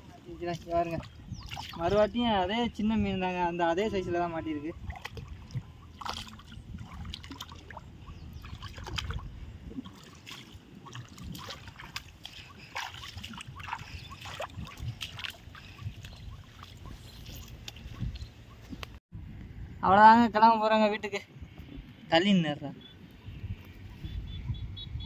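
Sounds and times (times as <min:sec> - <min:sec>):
footsteps through grass: 0:11.4 - 0:19.0.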